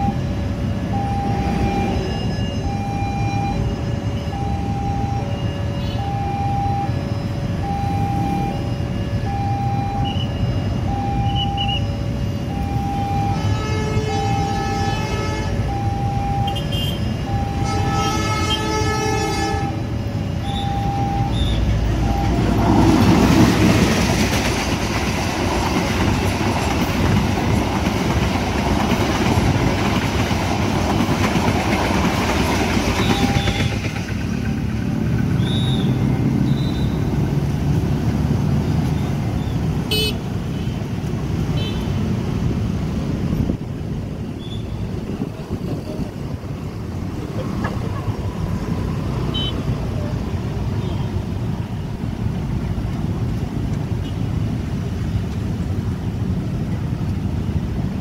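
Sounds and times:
level crossing warning beeps: 0.0 - 13.5, 15.6 - 17.8, 20.0 - 22.7, 32.8 - 33.9
road traffic: 0.0 - 58.0
train horn blasts: 13.2 - 15.6, 16.5 - 19.8
train wheels rushing past: 21.0 - 39.8.

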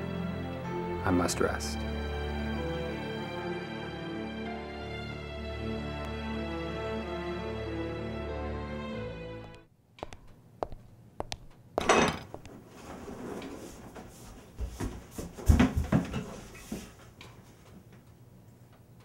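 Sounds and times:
objects knocking and clicking: 10.0 - 12.5.

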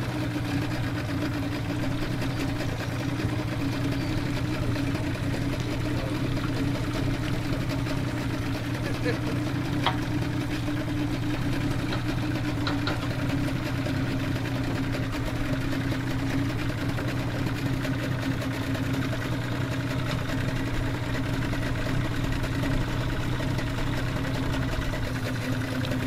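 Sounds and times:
outboard motor idling: 0.0 - 26.0.

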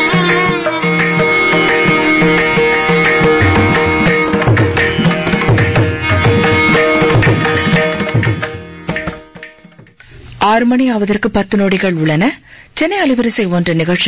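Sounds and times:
hand drum strokes: 0.3 - 10.0
sustained instrumental melody: 0.6 - 9.9
steady drone: 0.8 - 7.8.

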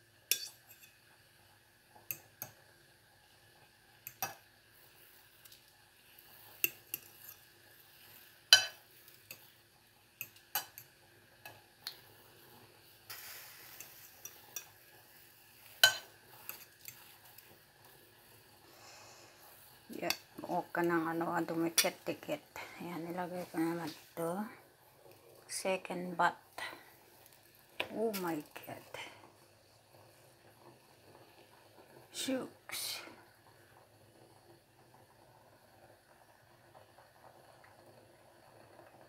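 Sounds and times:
metal fork clinking on pot: 0.3 - 0.9, 8.5 - 9.5, 10.2 - 10.9, 15.8 - 17.0.

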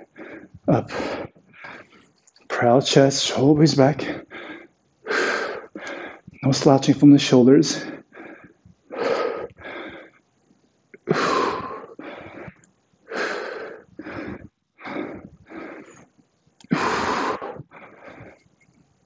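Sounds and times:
man breathing heavily: 0.0 - 2.1, 4.0 - 6.4, 7.7 - 10.4, 11.0 - 18.5.

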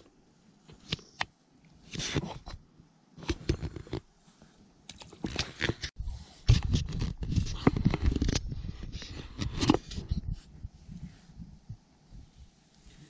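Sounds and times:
handling noise near microphone: 5.0 - 13.0.

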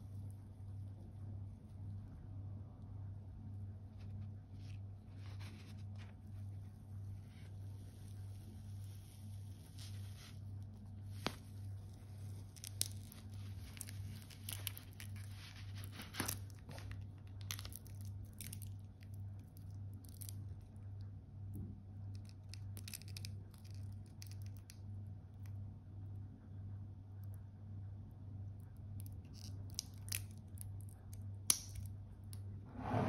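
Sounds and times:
steady low hum: 0.0 - 33.0
plastic film crinkling and tearing: 7.3 - 20.4.

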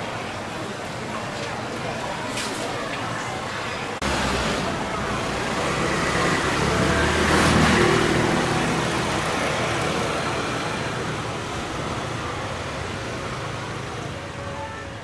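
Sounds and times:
vehicle passing: 4.0 - 14.1.

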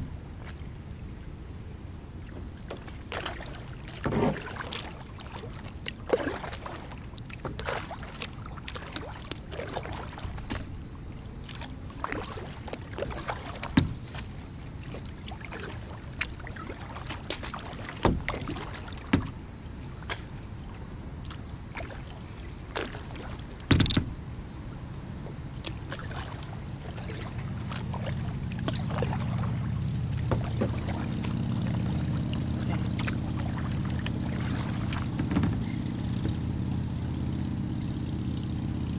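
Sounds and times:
low steady hum: 0.0 - 38.9
paddle strokes splashing: 2.2 - 37.6
paddle knocking on plastic hull: 13.0 - 14.3, 17.2 - 19.4, 30.0 - 31.9, 32.6 - 36.5.

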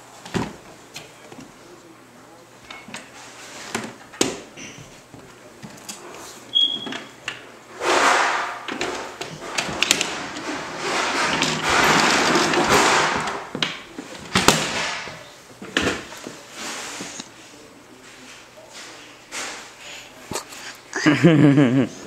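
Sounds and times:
toy vacuum rolling on floor: 8.8 - 13.3.

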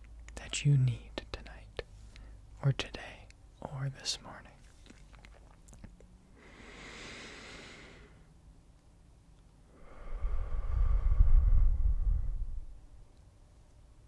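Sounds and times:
person inhaling: 6.4 - 8.3, 9.7 - 12.6
exhale blowing on microphone: 9.7 - 12.8.

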